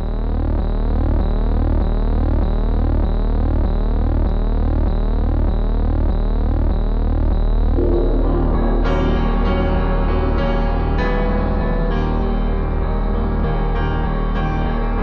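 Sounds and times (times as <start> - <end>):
electronic drone: 0.0 - 15.0
music: 0.0 - 15.0
pulsing sweeping tone: 7.8 - 11.1.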